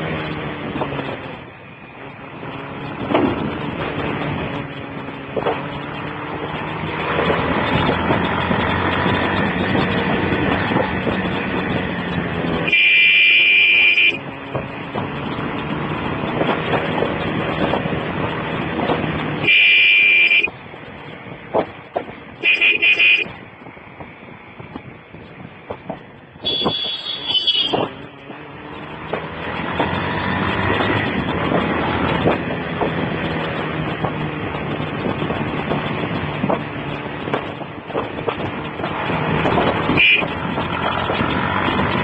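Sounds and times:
wind noise: 0:00.0 - 0:12.8, 0:13.4 - 0:42.0
motorcycle engine: 0:00.0 - 0:42.0
motorcycle horn: 0:12.6 - 0:14.2, 0:19.4 - 0:20.5, 0:22.4 - 0:23.3, 0:26.4 - 0:27.9, 0:40.0 - 0:40.4.

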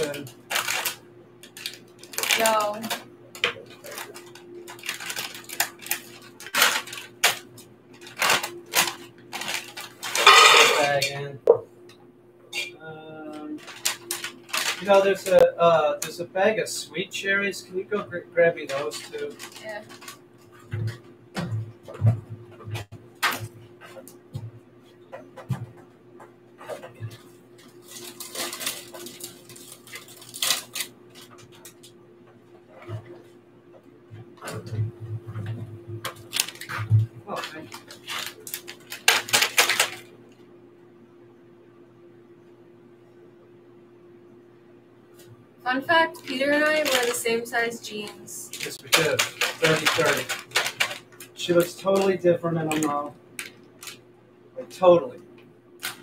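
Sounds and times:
plastic bag crinkling: 0:00.0 - 0:11.0, 0:13.5 - 0:15.4, 0:18.7 - 0:20.3, 0:27.2 - 0:31.9, 0:36.0 - 0:40.1, 0:45.9 - 0:54.0
faint steady hum: 0:00.0 - 0:56.0
utensils clattering on worktable: 0:04.8 - 0:11.2, 0:48.0 - 0:51.0.

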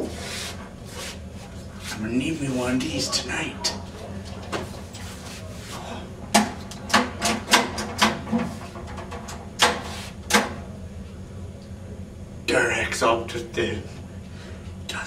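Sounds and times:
vending machine clicks and clunks: 0:06.3 - 0:10.6.

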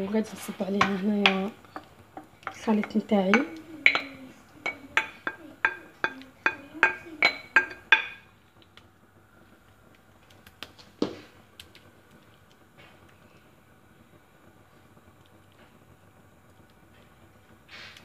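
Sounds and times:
utensil clinking against bowl: 0:00.8 - 0:08.2.

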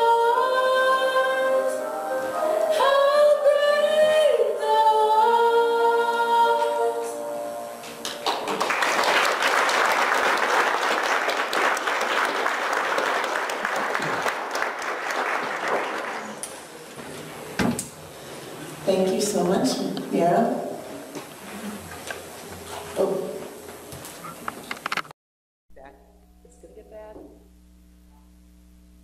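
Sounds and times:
woman singing into microphone: 0:00.0 - 0:07.3
congregation applauding: 0:08.0 - 0:16.8.

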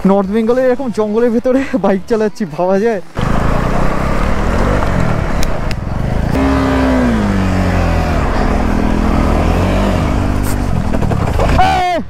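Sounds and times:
motorcycle engine revving: 0:03.2 - 0:11.6.

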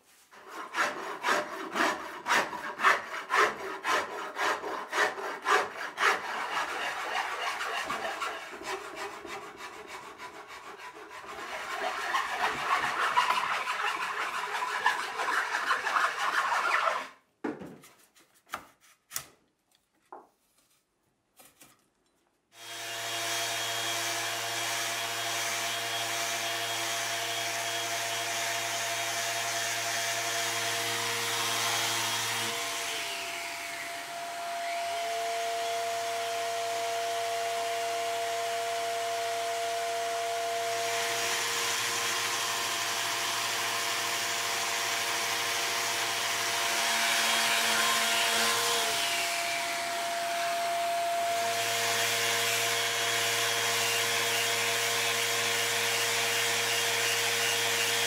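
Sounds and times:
orbital sander running: 0:22.6 - 0:58.0.

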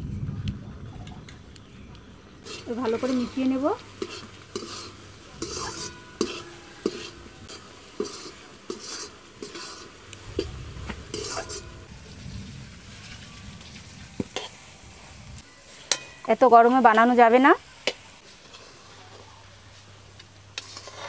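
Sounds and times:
metal spatula scraping a pan: 0:02.4 - 0:11.9, 0:20.5 - 0:21.0.

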